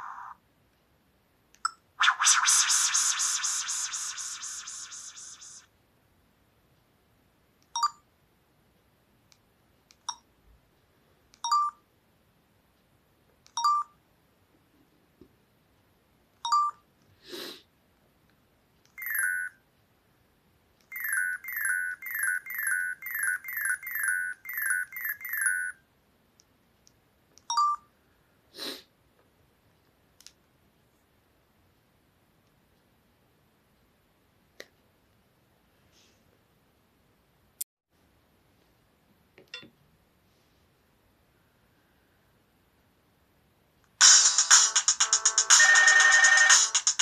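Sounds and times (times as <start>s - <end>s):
brief swishes: 2.0s - 5.6s
falling electronic chimes ringtone: 44.0s - 47.0s.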